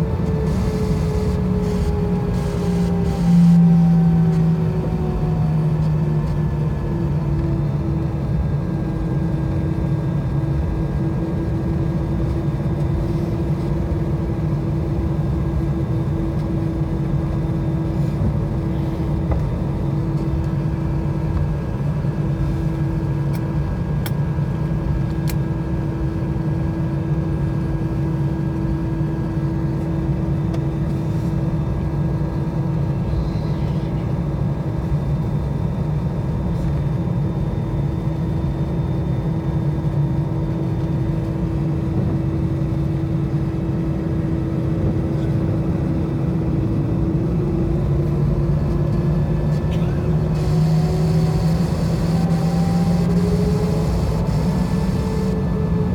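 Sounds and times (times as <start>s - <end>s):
aircraft cabin drone: 0.0s - 55.9s.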